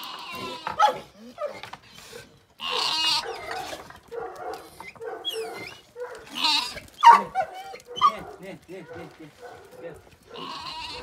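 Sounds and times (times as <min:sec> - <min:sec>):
lamb bleating: 0:00.0 - 0:00.9, 0:02.6 - 0:03.4, 0:06.3 - 0:07.3, 0:10.3 - 0:11.0.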